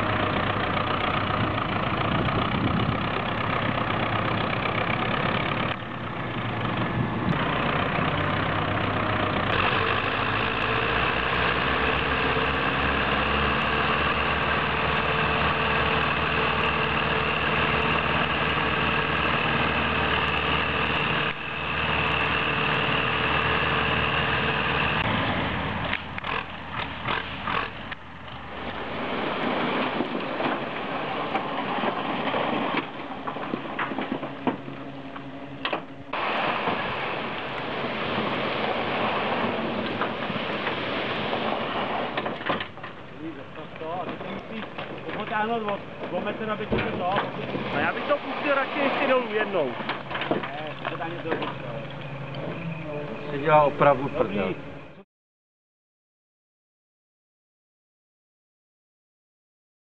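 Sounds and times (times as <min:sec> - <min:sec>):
diesel engines running: 0:00.0 - 0:55.0
quiet uneven rumble: 0:27.7 - 0:55.0.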